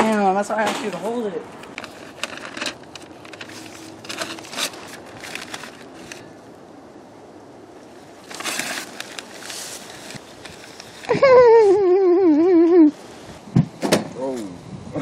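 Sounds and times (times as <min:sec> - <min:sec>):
paper and plastic handled: 0:00.6 - 0:06.3, 0:08.2 - 0:11.3
rustling hiss bursts: 0:08.3 - 0:11.8.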